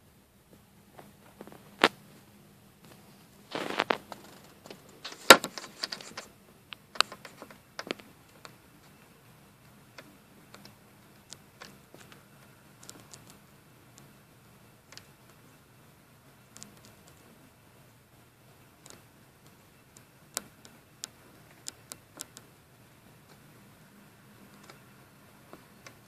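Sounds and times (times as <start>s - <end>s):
scraping rustles: 1.0s - 6.3s
sharp clicks: 12.8s - 14.1s, 18.8s - 22.5s.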